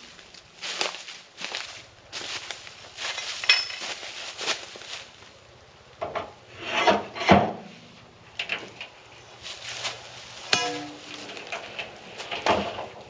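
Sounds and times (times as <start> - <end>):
scraping and rubbing strokes: 9.4 - 12.8.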